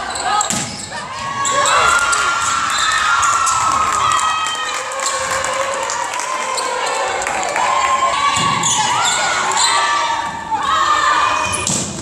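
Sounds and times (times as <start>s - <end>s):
players shouting: 0.0s - 11.6s
volleyball hits: 11.5s - 12.0s.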